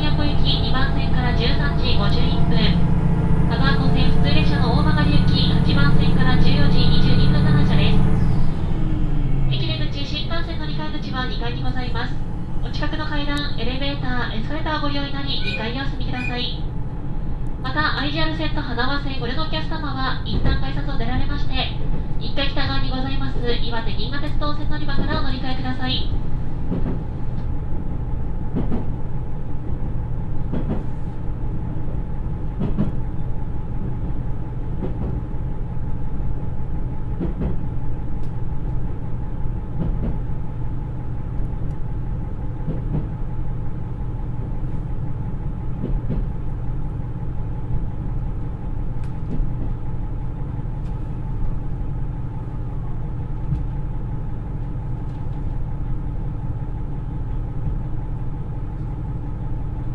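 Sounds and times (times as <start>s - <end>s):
diesel engine running: 0.0s - 14.7s
continuous train rumble: 0.0s - 59.9s.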